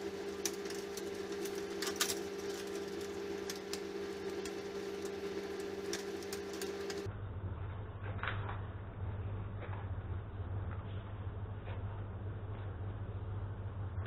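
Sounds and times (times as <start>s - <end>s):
steady hum: 0.0s - 14.0s
metal wire and clips clicking: 0.4s - 7.0s.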